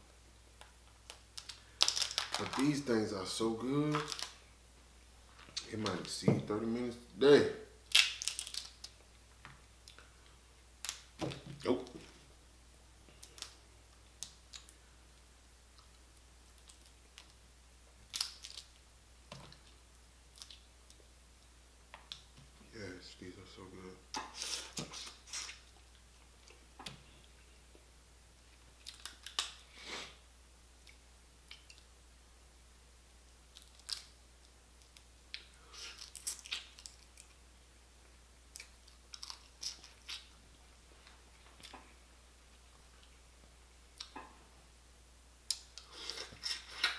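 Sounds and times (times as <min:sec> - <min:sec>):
crab shell cracking and crunching: 0:00.6 - 0:02.6, 0:03.9 - 0:04.4, 0:07.9 - 0:09.0, 0:18.1 - 0:18.7, 0:28.8 - 0:29.6, 0:33.5 - 0:34.2, 0:34.8 - 0:37.4, 0:38.5 - 0:40.3
crab shell cracking: 0:01.0 - 0:02.6, 0:07.9 - 0:09.0, 0:18.1 - 0:18.7, 0:28.8 - 0:29.6, 0:33.5 - 0:34.2.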